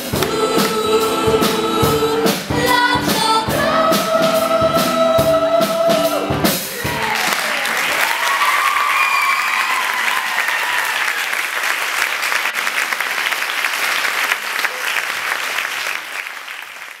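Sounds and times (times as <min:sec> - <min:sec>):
audience clapping: 0:06.9 - 0:17.0.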